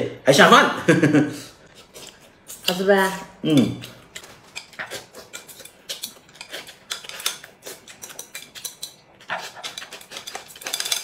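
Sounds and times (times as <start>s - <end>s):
eating noises: 1.4s - 11.0s.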